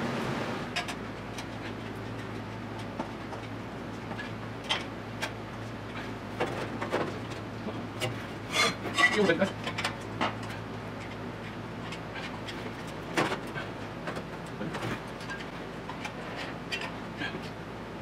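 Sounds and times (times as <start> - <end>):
steady low hum: 0.0 - 18.0
metal tools clicking and tapping: 8.8 - 14.6, 15.2 - 17.6.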